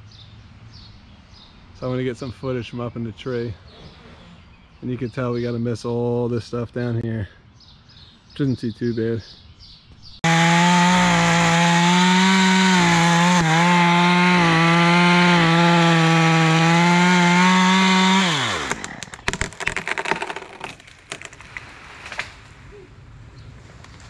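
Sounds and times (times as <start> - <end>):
chainsaw cutting wood: 10.2 - 21.4.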